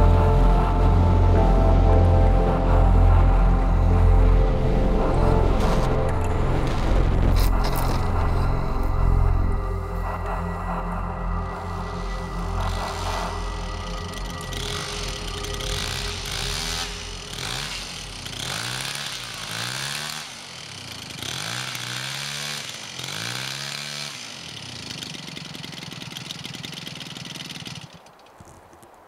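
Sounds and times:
model plane engine revving: 12.6s - 28.0s.

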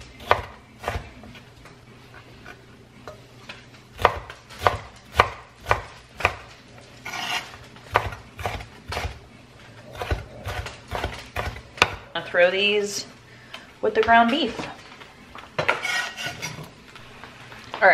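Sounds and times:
knife chopping on cutting board: 4.0s - 6.5s, 7.1s - 9.2s, 9.9s - 12.0s.

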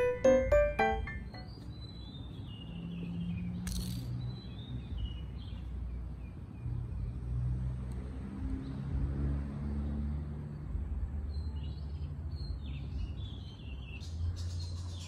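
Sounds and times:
birds chirping: 0.0s - 7.4s, 11.3s - 15.0s.

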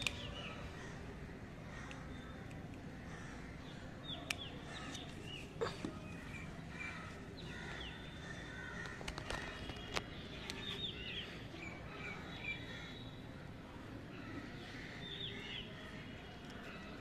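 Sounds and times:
birds chirping: 0.0s - 13.6s
steady low background noise: 0.0s - 17.0s.

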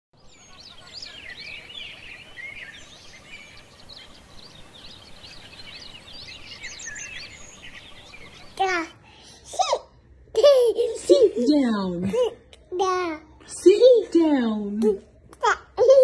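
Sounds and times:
small birds chirping: 0.2s - 9.4s.

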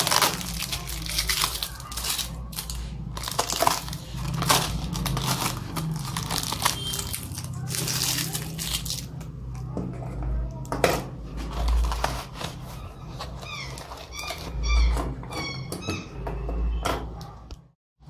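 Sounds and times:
paper packaging rustling: 0.0s - 9.2s, 11.2s - 14.8s.

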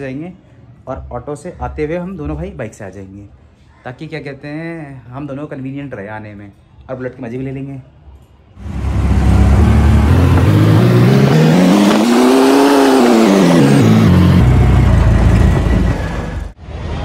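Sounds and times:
car engine revving: 8.6s - 16.5s
road and wind noise: 8.6s - 17.0s.

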